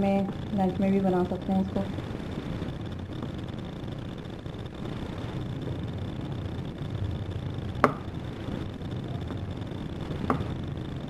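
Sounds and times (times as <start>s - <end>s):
steady low hum: 0.0s - 11.0s
knocks on a ceramic bowl: 7.8s - 8.0s.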